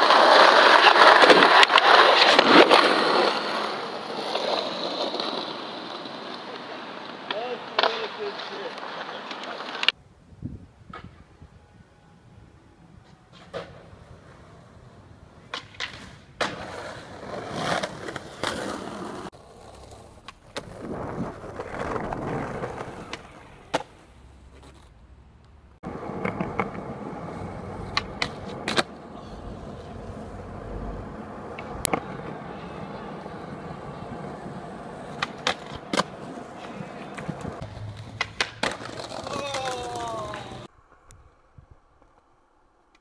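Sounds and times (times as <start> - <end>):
skateboard clacks: 0.0 - 10.0, 15.4 - 24.0, 25.8 - 40.7
skateboard wheels rolling: 0.0 - 11.6, 12.9 - 43.0.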